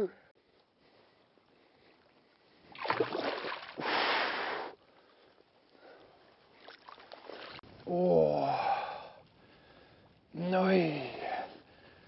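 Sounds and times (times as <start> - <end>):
fish splashing in water: 2.8 - 3.8.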